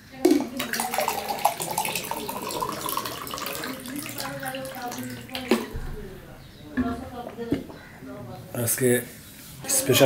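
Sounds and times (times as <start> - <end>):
water pouring into glass: 0.5 - 5.7.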